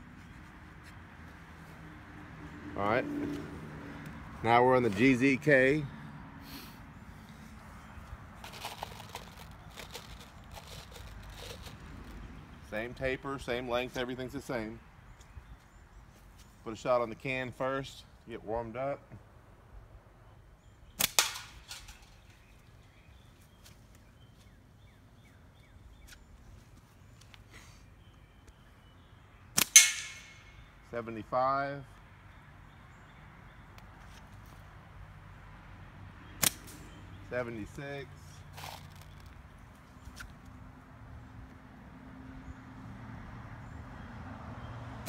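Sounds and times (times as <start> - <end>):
shot hitting metal can: 29.6 - 30.5
slingshot bands snapping: 36.4 - 36.8.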